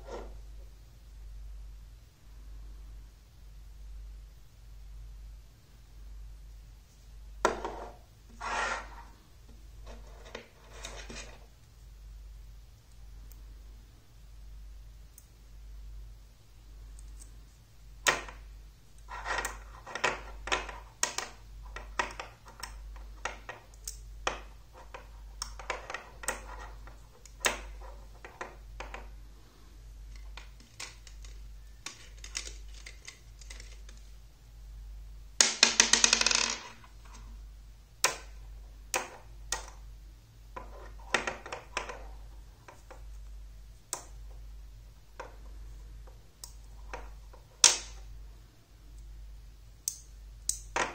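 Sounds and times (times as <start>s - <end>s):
faint low hum: 0.0s - 50.9s
magnetic pieces clicking together: 19.0s - 28.5s, 30.1s - 34.1s, 49.8s - 50.8s.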